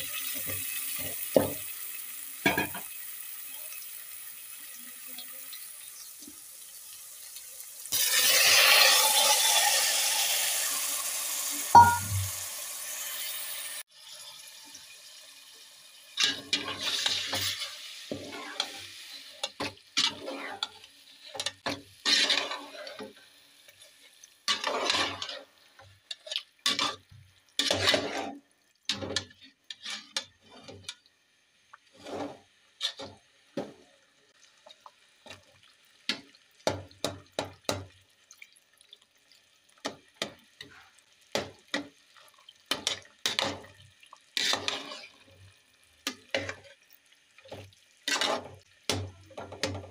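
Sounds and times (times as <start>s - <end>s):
frying sizzle: 0.0s - 49.9s
metal spatula scraping pot: 16.2s - 23.2s, 24.5s - 31.0s, 31.9s - 33.2s, 44.4s - 45.4s, 46.0s - 46.7s, 48.0s - 49.9s.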